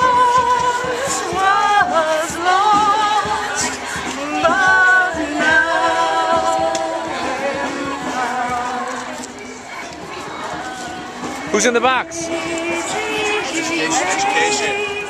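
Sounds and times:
women singing without instruments: 0.0s - 9.1s, 12.2s - 15.0s.

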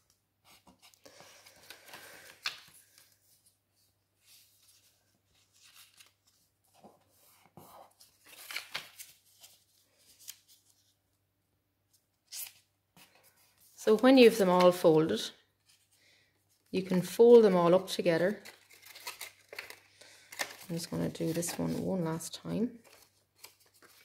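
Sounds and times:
paper crinkling: 4.4s - 7.0s, 18.2s - 24.0s
paper rustling and scraping: 18.4s - 22.2s.

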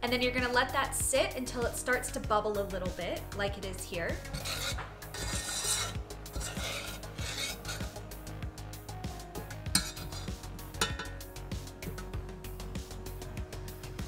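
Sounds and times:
metal spoon scraping saucepan: 4.1s - 8.0s, 9.8s - 11.2s.

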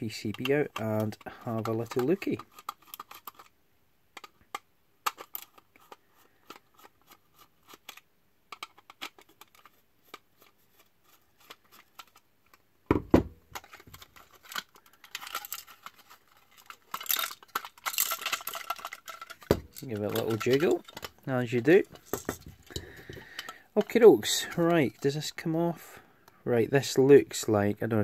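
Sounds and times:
plastic parts rattling: 0.0s - 25.4s.

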